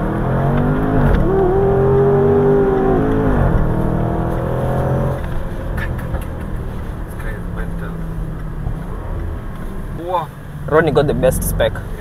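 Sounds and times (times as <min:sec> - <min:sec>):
car engine revving from inside cabin: 0:00.0 - 0:06.0.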